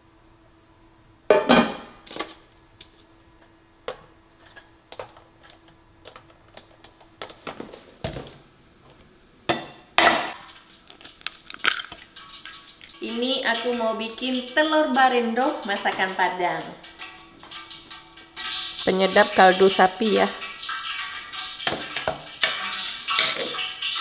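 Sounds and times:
eggs knocking on steel bowl: 21.6 - 23.6.

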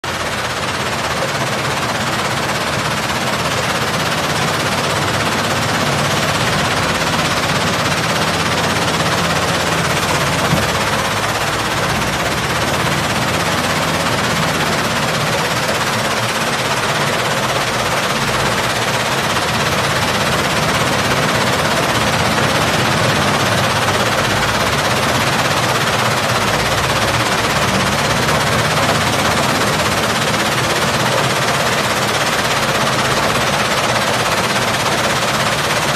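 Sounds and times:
vibrating sluice rattling: 0.1 - 35.9.

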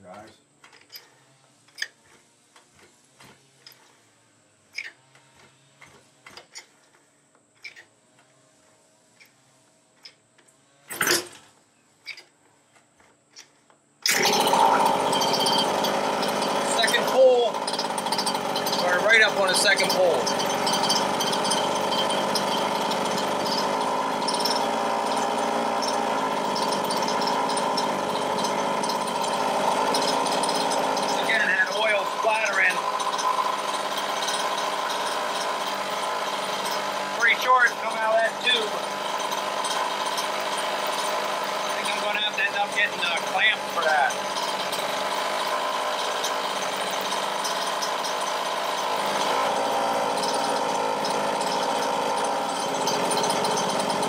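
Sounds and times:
pull-starter clicks: 0.1 - 4.0, 4.7 - 8.4, 12.0 - 54.0
two-stroke engine running: 14.0 - 54.0.

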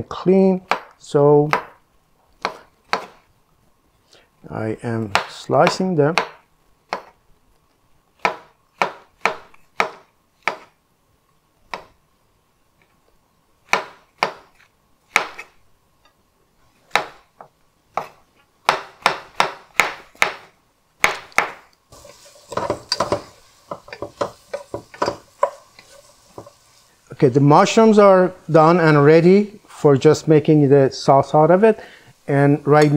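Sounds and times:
knife chopping on wooden board: 2.4 - 3.2, 8.2 - 10.7, 13.7 - 15.5, 16.9 - 17.2, 17.9 - 21.7, 22.5 - 25.6
wooden spatula stirring: 21.9 - 29.8
onions sizzling in oil: 21.9 - 30.4, 31.1 - 32.9.

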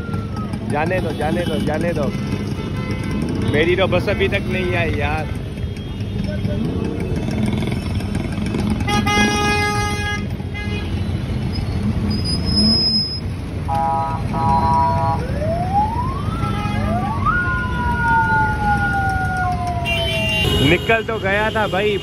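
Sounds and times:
vehicle horns blaring: 0.9 - 6.8, 8.6 - 11.6, 12.2 - 15.2, 19.8 - 22.0
siren-like wail: 14.5 - 20.6.

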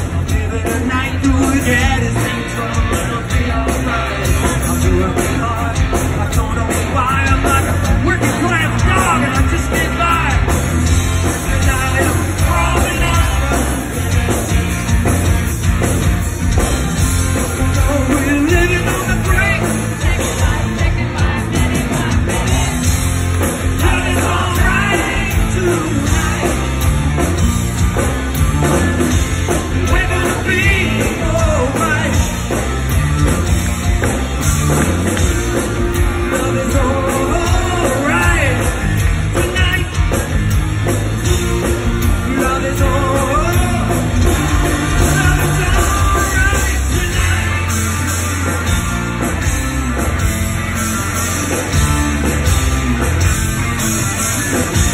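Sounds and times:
person singing lead vocal: 0.0 - 10.6, 11.2 - 14.5, 17.4 - 27.2, 28.7 - 32.7, 34.7 - 40.3, 41.2 - 48.1
live rock band: 0.0 - 54.9.

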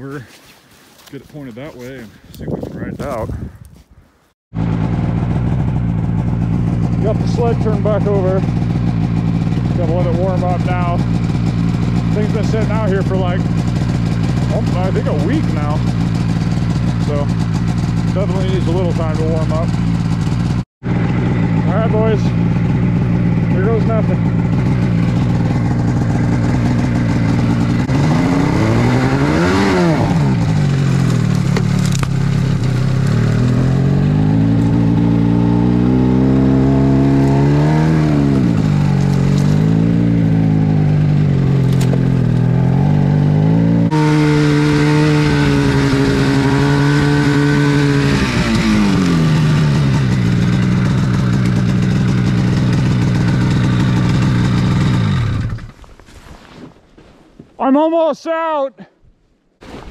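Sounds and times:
snowmobile engine revving: 4.6 - 55.7.

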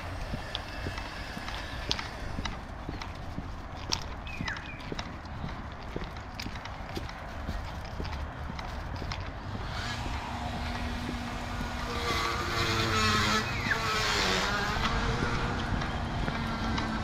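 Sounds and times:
vehicle driving past: 9.4 - 17.0.

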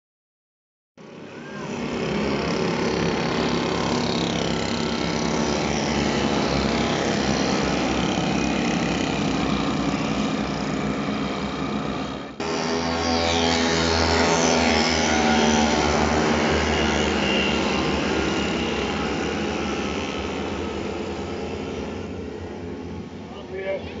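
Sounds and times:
small motorbike engines passing: 1.0 - 24.0.

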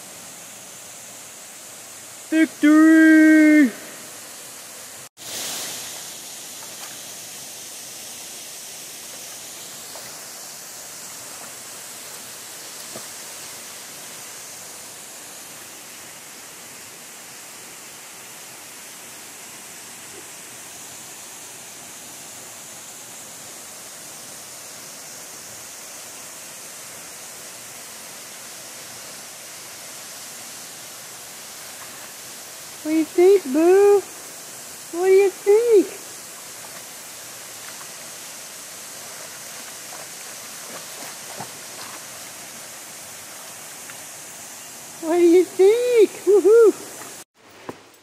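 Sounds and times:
waterfall rushing: 0.0 - 47.3.

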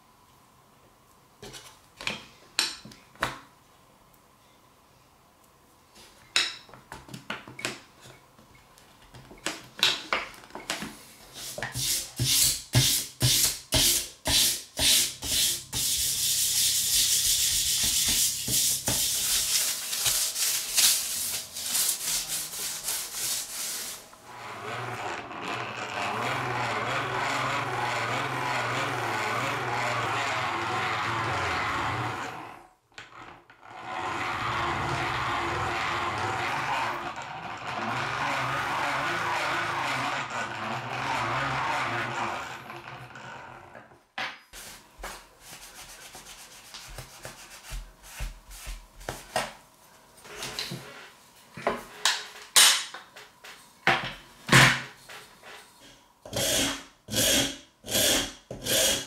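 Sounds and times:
sanding block scraping knife blade: 11.4 - 24.0
grinder low hum: 24.1 - 43.8
grinder wheel scraping blade: 24.2 - 43.2.

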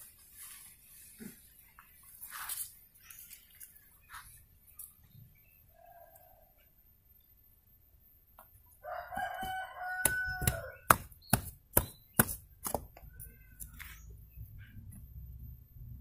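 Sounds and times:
rooster crowing: 8.8 - 11.1
knife chopping into root: 9.4 - 12.9.

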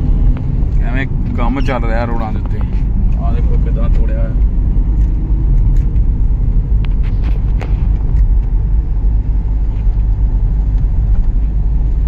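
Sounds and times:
road rumble inside a car: 0.0 - 12.0.

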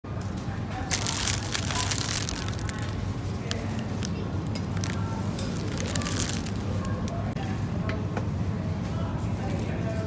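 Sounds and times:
plastic wrapping crinkling: 0.8 - 7.3.

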